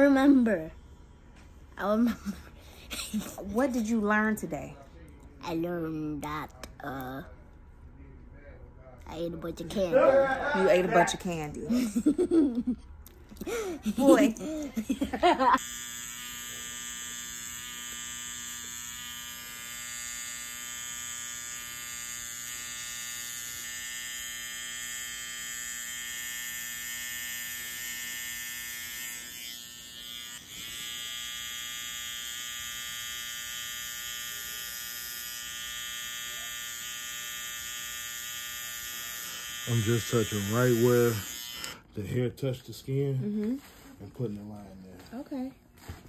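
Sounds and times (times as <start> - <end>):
electric hair clippers buzzing: 13.5 - 41.8.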